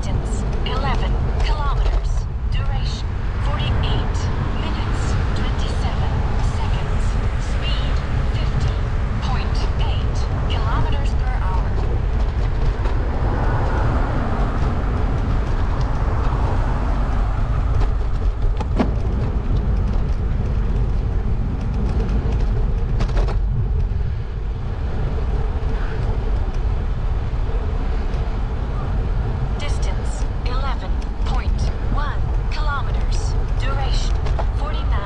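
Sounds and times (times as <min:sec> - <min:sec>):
low road rumble: 0:00.0 - 0:35.0
wind rush: 0:00.0 - 0:35.0.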